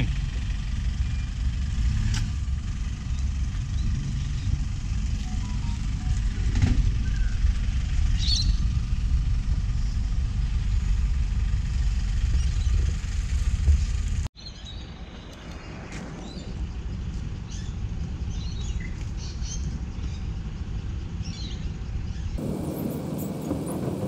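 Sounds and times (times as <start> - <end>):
excavator diesel engine running: 0.0 - 14.3, 20.4 - 24.0.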